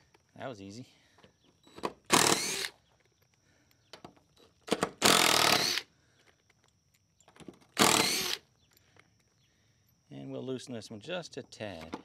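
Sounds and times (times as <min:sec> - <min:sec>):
impact driver hammering screws: 0:01.8 - 0:02.7, 0:04.6 - 0:05.8, 0:07.8 - 0:08.4.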